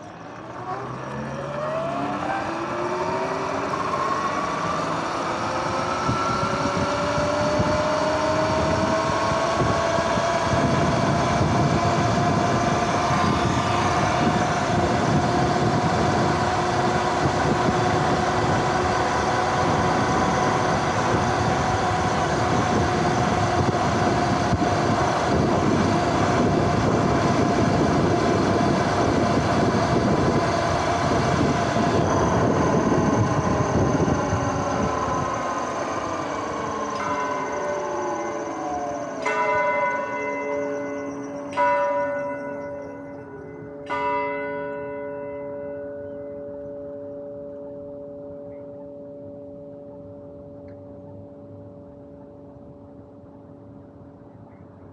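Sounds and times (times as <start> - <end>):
electric motor whining: 0.0 - 39.6
wind and road noise: 0.0 - 54.9.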